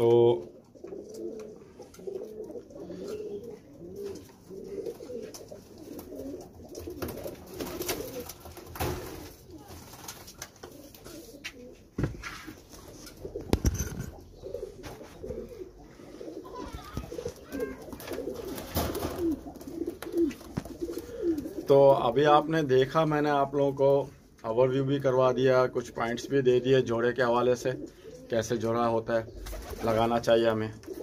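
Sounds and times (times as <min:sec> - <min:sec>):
pigeons cooing: 0:00.0 - 0:09.9, 0:10.5 - 0:22.5, 0:26.0 - 0:31.0.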